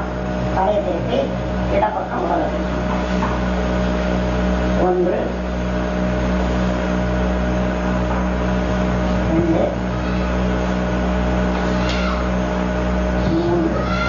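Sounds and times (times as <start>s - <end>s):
electrical hum with hiss: 0.0s - 14.0s.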